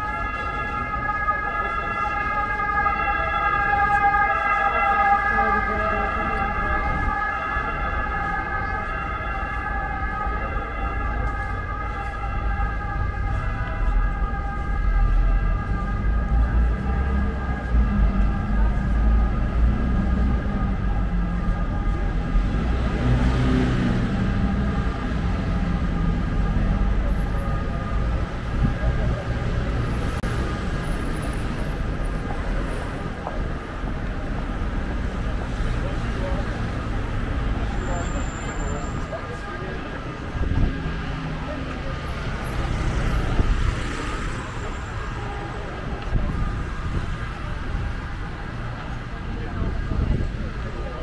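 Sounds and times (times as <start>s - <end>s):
street noise: 0.0s - 51.0s
cars driving past: 11.3s - 51.0s.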